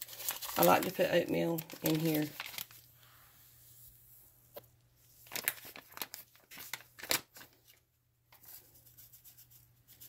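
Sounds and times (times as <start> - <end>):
packaging crinkling: 0.0 - 2.9, 5.2 - 7.8.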